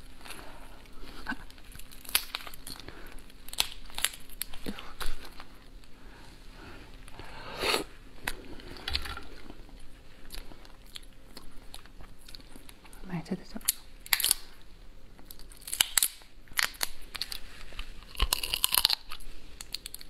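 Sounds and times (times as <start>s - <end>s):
lobster shells cracking: 1.4s - 5.4s, 13.7s - 14.5s, 15.2s - 17.4s, 18.0s - 20.0s
crunch of biting: 15.3s - 20.0s.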